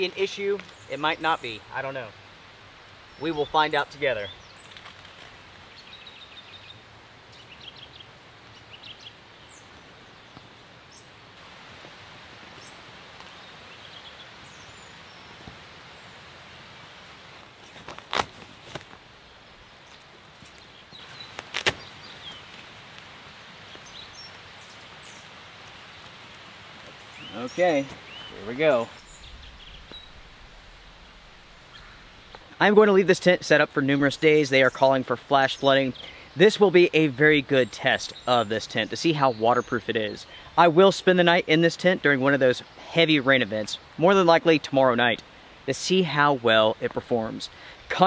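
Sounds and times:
small birds chirping: 0.0s - 11.2s, 12.5s - 18.0s, 19.1s - 48.0s
steady background hiss: 0.0s - 48.0s
faint bird chirps: 27.0s - 32.6s.

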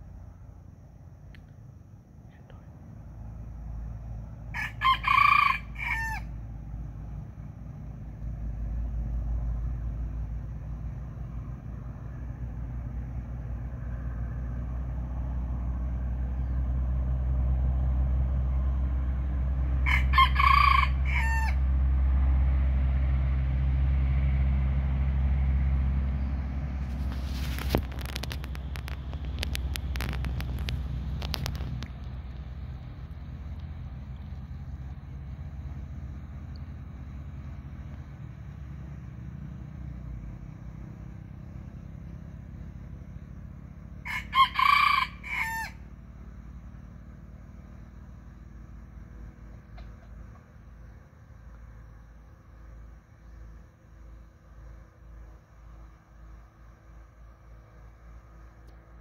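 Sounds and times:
rooster crowing: 4.5s - 6.4s, 19.8s - 21.7s, 44.0s - 45.9s
low rumble: 20.9s - 43.3s
crackling rustle: 26.8s - 34.6s.

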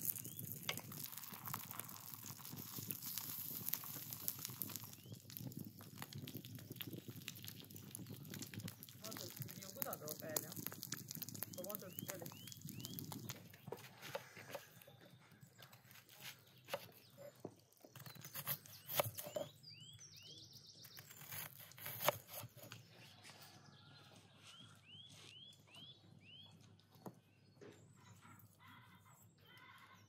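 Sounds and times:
small birds chirping: 0.0s - 30.0s
knife cutting onion on wooden board: 16.2s - 17.0s, 18.0s - 19.5s, 20.9s - 22.8s.

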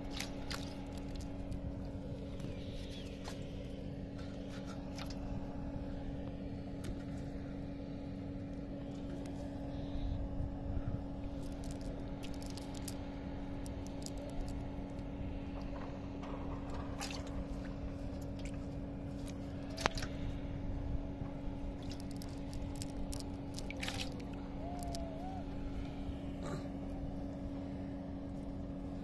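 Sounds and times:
engine hum: 0.0s - 29.0s
wet squelching: 21.8s - 25.0s.

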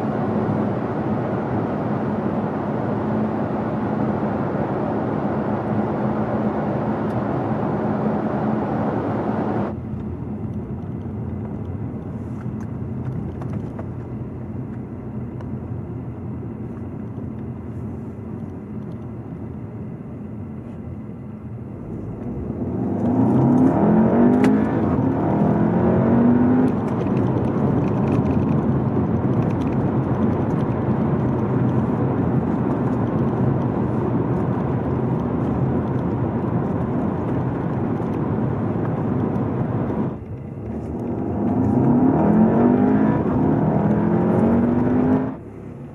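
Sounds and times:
car engine accelerating: 0.0s - 19.5s, 21.6s - 45.9s
road noise: 0.0s - 45.9s.

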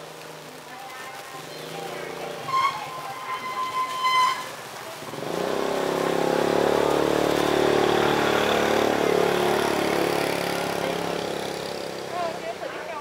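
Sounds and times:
engine running: 4.7s - 13.0s.

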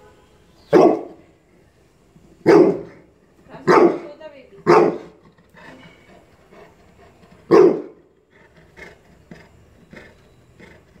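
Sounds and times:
dog barking: 0.7s - 1.2s, 2.4s - 3.0s, 3.6s - 5.2s, 7.5s - 8.0s.

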